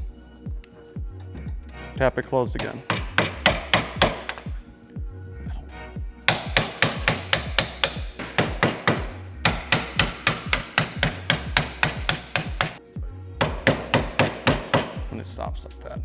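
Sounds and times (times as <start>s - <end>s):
hammer tapping on screwdriver: 2.6s - 4.5s, 6.3s - 12.8s, 13.4s - 15.1s.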